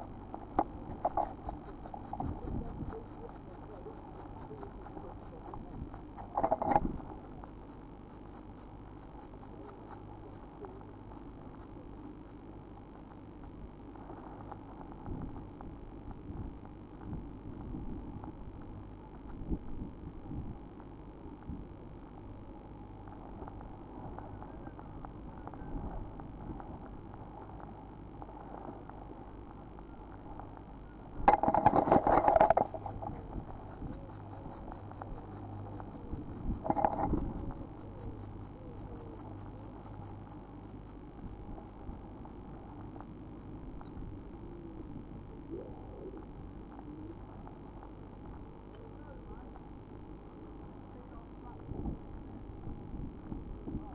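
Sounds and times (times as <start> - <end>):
bird scuffling at nest: 0.0 - 8.2, 30.1 - 44.2
faint steady hum: 0.0 - 53.9
nestlings cheeping: 0.0 - 53.9.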